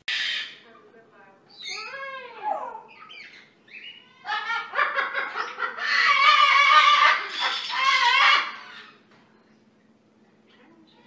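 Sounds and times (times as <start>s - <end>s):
parrot calling: 0.0s - 0.7s, 1.5s - 9.1s.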